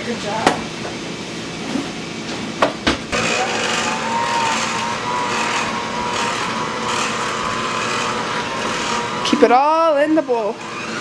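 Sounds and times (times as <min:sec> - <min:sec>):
electric hand mixer whining: 0:03.1 - 0:11.0.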